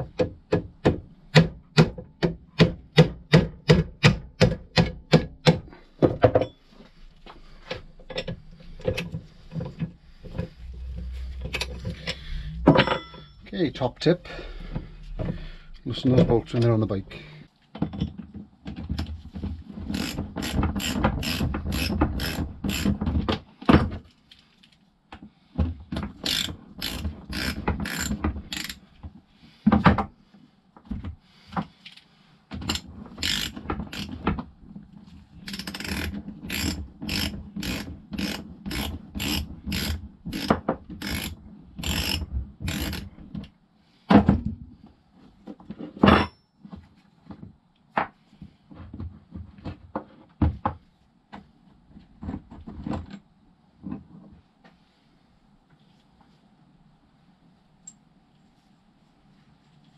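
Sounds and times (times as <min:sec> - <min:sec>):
ratchet wrench clicking: 0:26.2 - 0:28.8, 0:33.2 - 0:34.1, 0:35.5 - 0:43.1.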